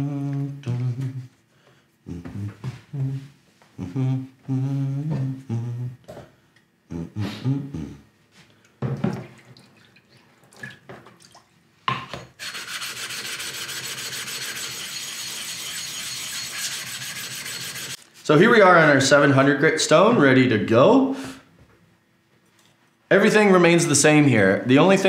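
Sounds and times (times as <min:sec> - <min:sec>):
man humming: 0:00.0 - 0:01.4, 0:02.0 - 0:08.1.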